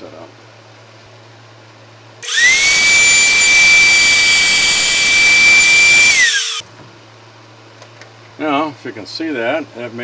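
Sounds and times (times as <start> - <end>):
router spinning down: 2.2 - 6.6
router whining: 2.2 - 6.6.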